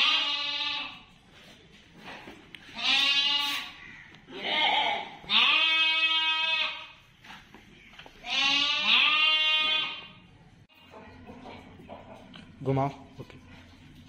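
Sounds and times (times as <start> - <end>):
goat bleating: 0.0 - 1.1, 2.6 - 7.0, 8.2 - 10.9.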